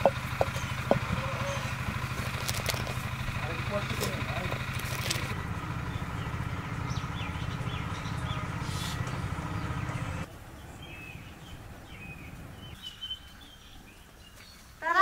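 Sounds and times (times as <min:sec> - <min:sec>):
motor humming: 0:00.0 - 0:10.3
birds chirping: 0:00.0 - 0:15.0.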